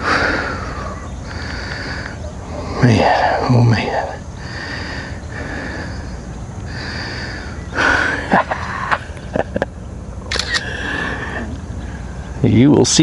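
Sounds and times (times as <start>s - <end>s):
sharp clicks: 10.3s - 10.7s.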